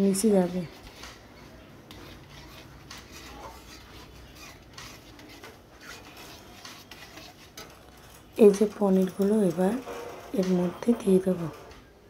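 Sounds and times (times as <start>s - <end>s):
metal spatula scraping a pan: 0.1s - 11.8s.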